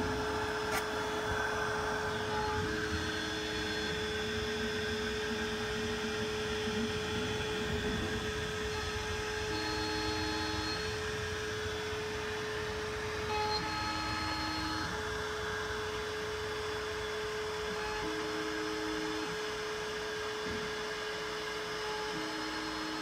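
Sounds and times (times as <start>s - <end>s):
thin machine tones: 0.0s - 5.8s, 8.6s - 16.8s
router motor whirring and cutting: 0.0s - 23.0s.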